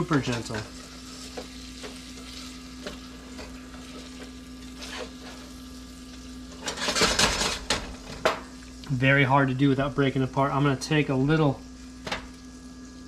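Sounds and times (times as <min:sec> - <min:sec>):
butter sizzling in a saucepan: 0:00.0 - 0:09.2
spoon scraping a pan: 0:00.2 - 0:05.5.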